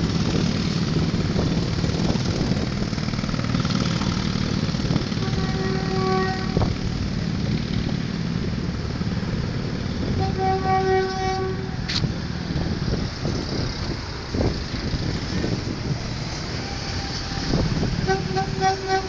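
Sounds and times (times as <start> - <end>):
train horn blasts: 5.2 - 6.8, 10.1 - 11.9, 16.6 - 19.0.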